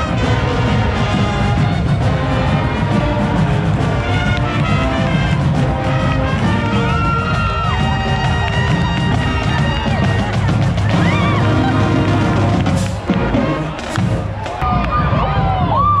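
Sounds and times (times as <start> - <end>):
marching band with brass horns: 0.0 - 16.0.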